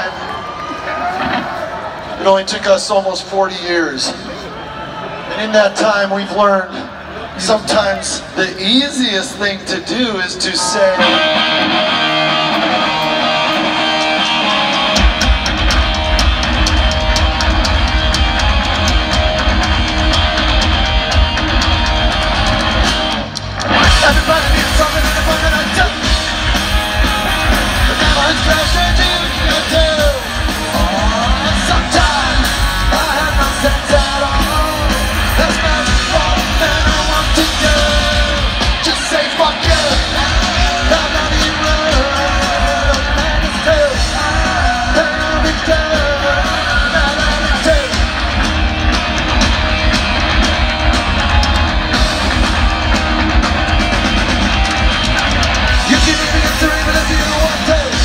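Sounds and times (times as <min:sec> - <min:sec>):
electric guitar: 0:10.9 - 0:58.0
bass and drums: 0:11.0 - 0:58.0
shouted sung vocal: 0:23.9 - 0:48.1.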